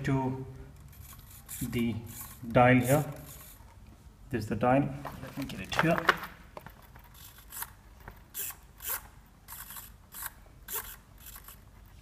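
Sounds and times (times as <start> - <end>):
servos whirring: 0.7 - 3.8, 6.8 - 12.0.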